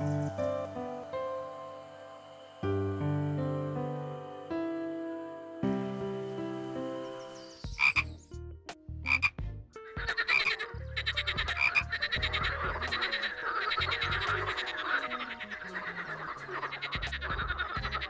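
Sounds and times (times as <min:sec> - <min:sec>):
frogs croaking: 0:00.0 - 0:08.2, 0:09.1 - 0:18.0
piano music: 0:00.0 - 0:18.0.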